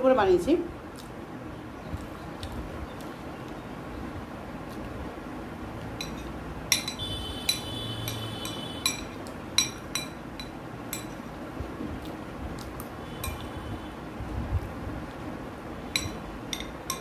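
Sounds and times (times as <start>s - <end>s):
glass plate ringing: 6.0s - 11.1s
metal spoon clinking on glass plate: 6.0s - 11.2s, 13.2s - 13.4s, 15.9s - 17.0s.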